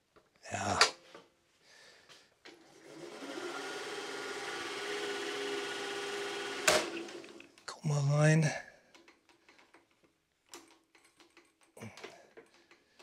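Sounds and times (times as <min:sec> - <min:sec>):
electric reel mower whine: 0:02.6 - 0:07.6.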